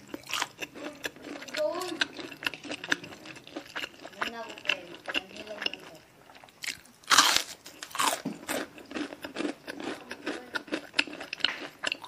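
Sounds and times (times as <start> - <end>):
fried chicken crunching: 0.0 - 12.0.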